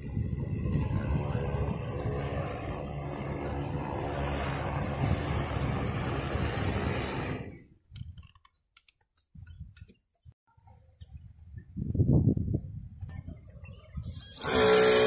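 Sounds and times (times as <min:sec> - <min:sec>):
drone propellers whirring: 0:00.0 - 0:07.7, 0:14.1 - 0:15.0.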